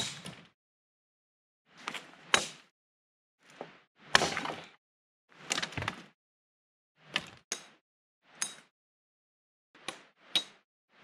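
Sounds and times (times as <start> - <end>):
blade chopping branches: 4.0 - 4.8.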